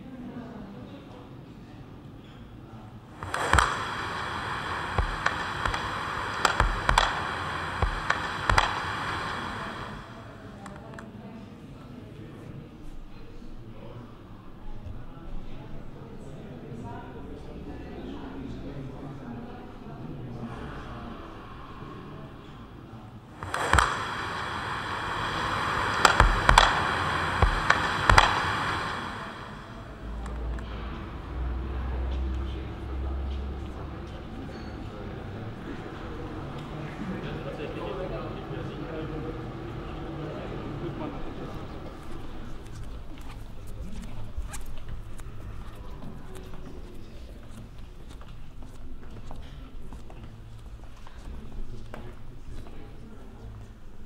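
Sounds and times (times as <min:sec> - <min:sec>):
electronic hiss: 0:03.1 - 0:10.4, 0:23.4 - 0:32.4
sharp clicks from loudspeakers: 0:03.2 - 0:11.1, 0:23.4 - 0:30.8.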